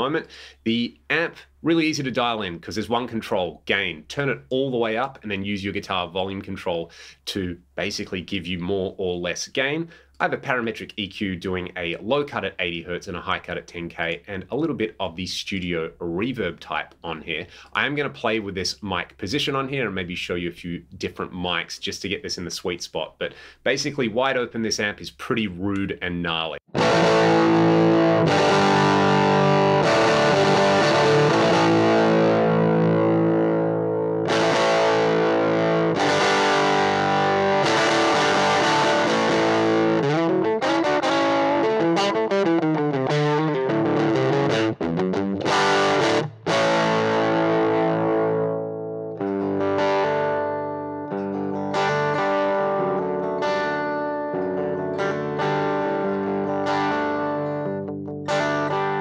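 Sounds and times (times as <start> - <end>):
distorted electric guitar: 26.7 - 59.0.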